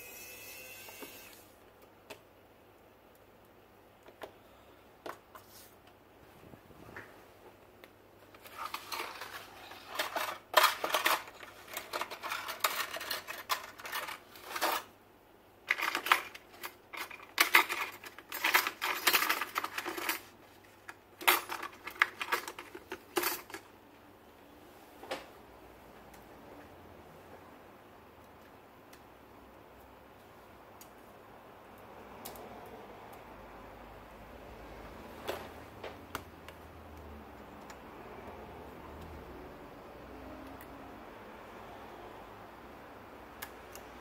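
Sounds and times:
small hard objects clattering: 8.4 - 14.9, 15.7 - 20.4.

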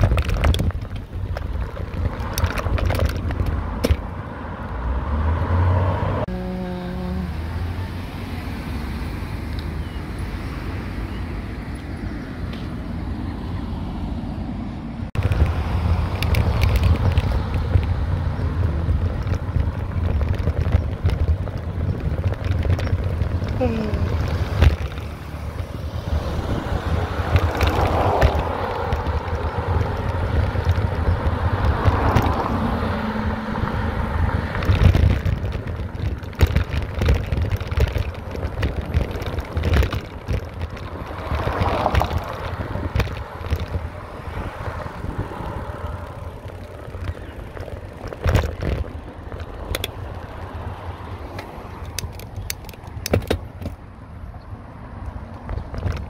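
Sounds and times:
bicycle tyre noise: 0.0 - 4.1, 15.2 - 53.8
bicycle clicks and rattles: 0.0 - 4.2, 15.2 - 32.7, 34.2 - 53.9, 55.0 - 56.0
wind rumble on microphone: 0.0 - 8.8, 9.5 - 56.0.

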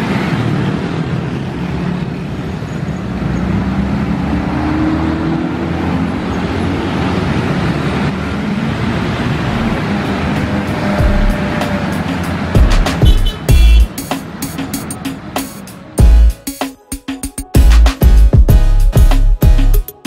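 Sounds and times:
motorcycle and scooter engines: 0.0 - 16.0
cars passing: 0.0 - 16.6.

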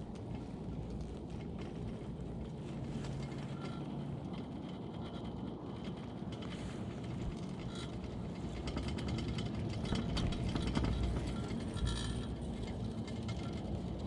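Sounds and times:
chairlift clattering through sheave wheels: 0.0 - 14.0
low rumble of haul rope: 0.0 - 14.0.

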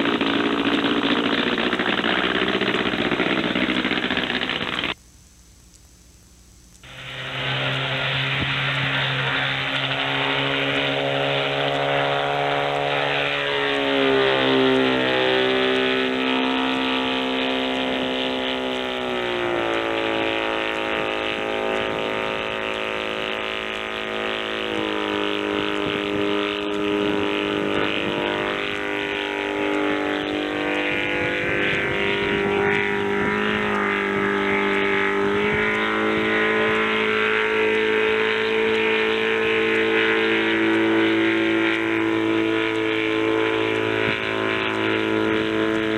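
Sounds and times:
small aircraft engine in flight: 0.0 - 5.0, 6.7 - 45.9.

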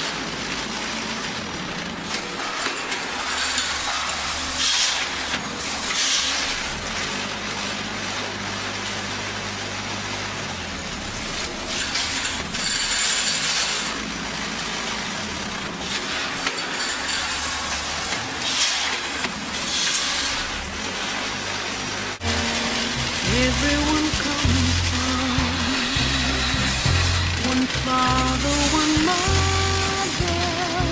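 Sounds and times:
machine humming: 21.7 - 30.9.

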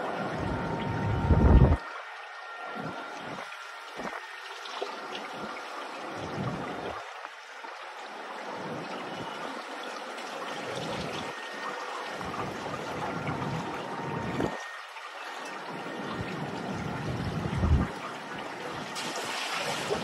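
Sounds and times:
wind buffeting microphone: 0.4 - 1.8, 16.2 - 18.0.

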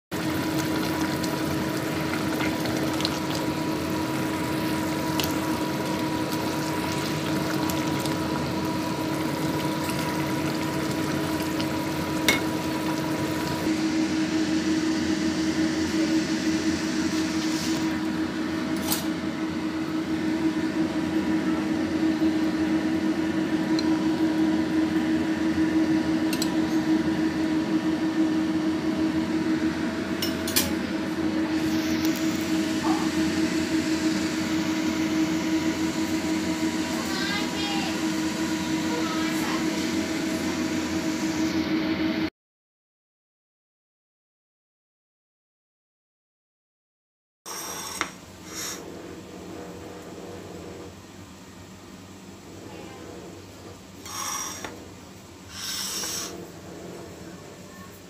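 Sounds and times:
stew bubbling in a pot: 0.1 - 13.7.

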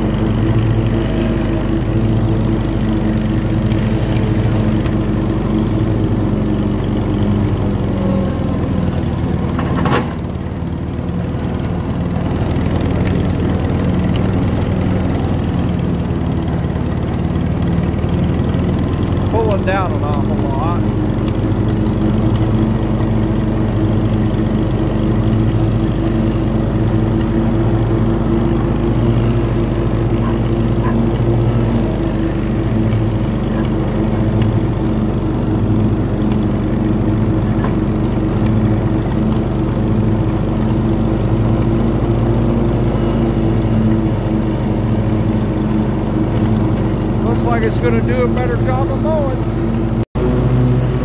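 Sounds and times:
riding lawn mower running: 0.0 - 51.0.

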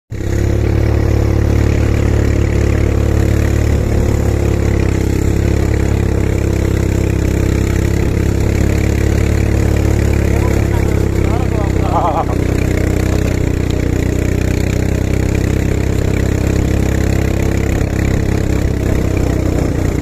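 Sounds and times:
quad bike engine idling: 0.1 - 20.0.

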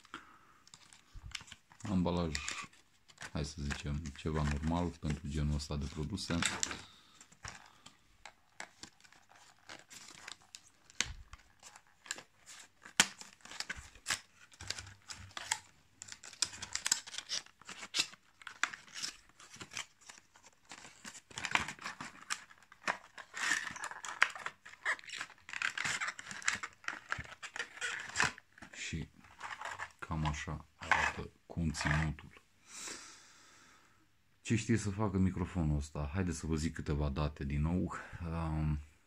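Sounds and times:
plastic crinkling: 0.6 - 32.2
cardboard tearing and scraping: 8.5 - 28.7.

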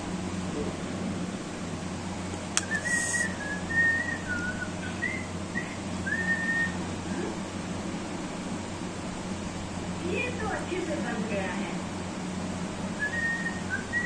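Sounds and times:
steady low hum: 0.0 - 14.0
sharp click: 2.5 - 2.7
person whistling a tune: 2.6 - 6.8, 13.0 - 14.0.

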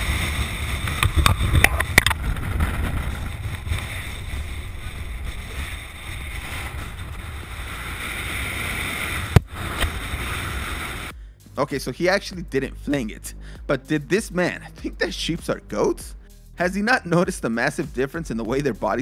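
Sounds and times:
wind buffeting microphone: 0.0 - 11.1.

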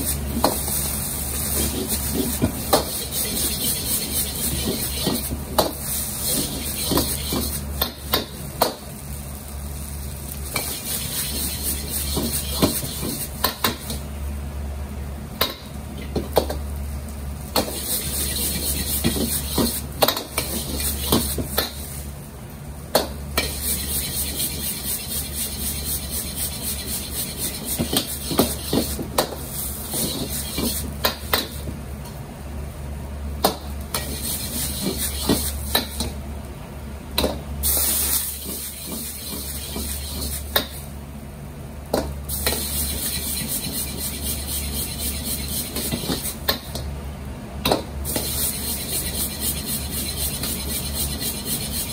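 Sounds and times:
rice sizzling: 0.0 - 14.7, 16.6 - 22.3, 23.2 - 31.7, 33.7 - 36.2, 37.5 - 41.0, 42.2 - 46.4, 48.0 - 51.9
gas burner roaring: 0.0 - 51.9.

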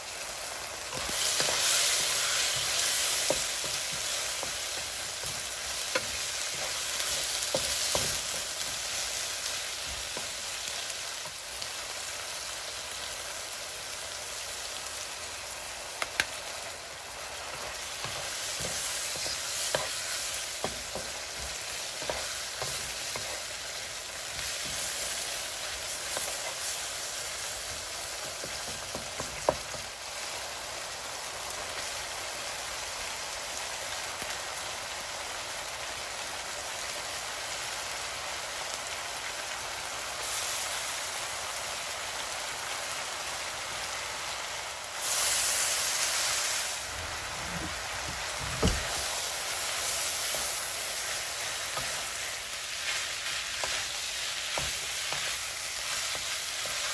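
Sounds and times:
food sizzling in a frying pan: 0.0 - 56.9
wooden spatula knocking on pan: 2.5 - 8.8, 17.6 - 23.4, 28.4 - 29.9.

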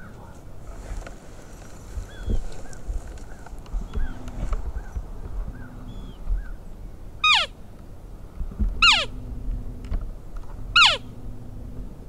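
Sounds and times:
elk whistled calls: 7.2 - 7.5, 8.8 - 9.2, 10.8 - 11.1.

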